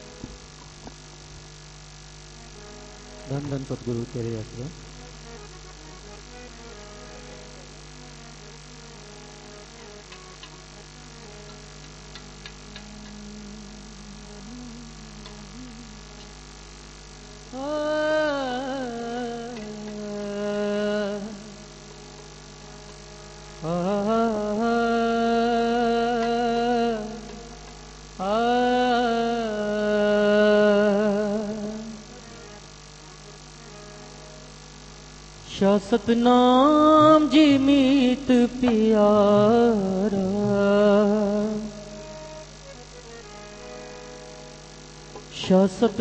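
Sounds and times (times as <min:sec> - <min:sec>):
low steady hum: 0:00.0 - 0:46.0
man singing a chant: 0:12.8 - 0:16.3, 0:17.5 - 0:21.7, 0:23.6 - 0:32.2, 0:35.4 - 0:42.3, 0:45.3 - 0:46.0
faint wavering tone: 0:12.9 - 0:16.5.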